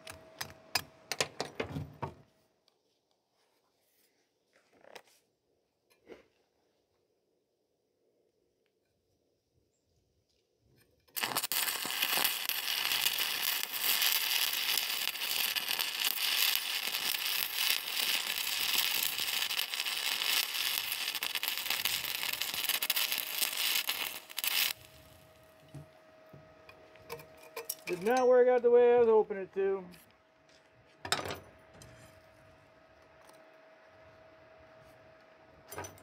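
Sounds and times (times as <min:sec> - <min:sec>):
welding arc crackling: 0:11.1 - 0:25.4.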